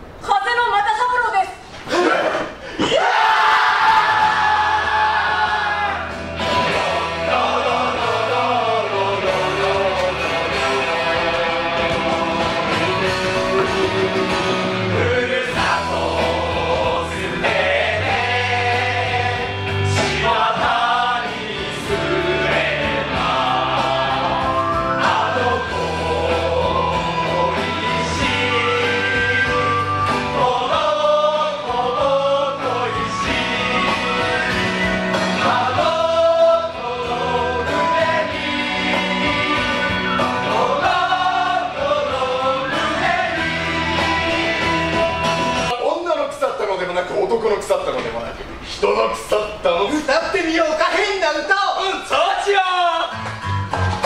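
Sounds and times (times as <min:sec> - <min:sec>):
voices singing together: 0:02.8 - 0:45.7
band accompaniment with bass line: 0:03.8 - 0:45.8, 0:53.1 - 0:54.0.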